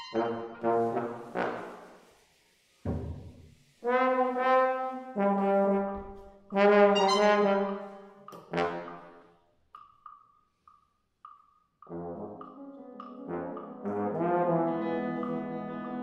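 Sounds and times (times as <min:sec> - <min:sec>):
bass trombone notes: 0:00.0 - 0:01.9, 0:03.8 - 0:09.2, 0:11.9 - 0:16.0.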